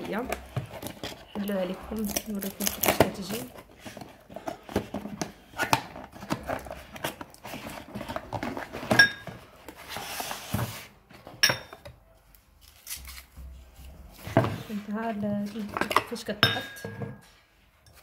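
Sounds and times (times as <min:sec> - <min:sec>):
cardboard box scraping and sliding: 0:09.7 - 0:11.0
ceramic bowls clinking: 0:11.4 - 0:11.9, 0:15.7 - 0:17.2.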